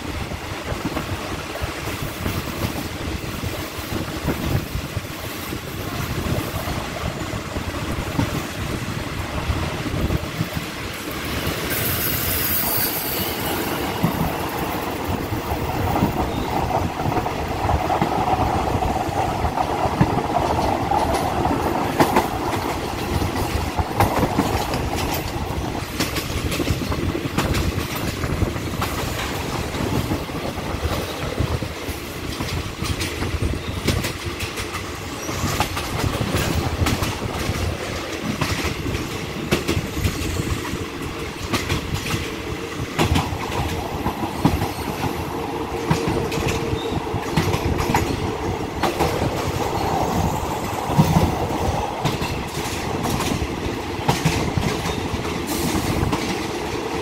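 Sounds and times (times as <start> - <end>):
clickety-clack of rail joints: 0.0 - 57.0
train wheel rumble: 0.0 - 57.0.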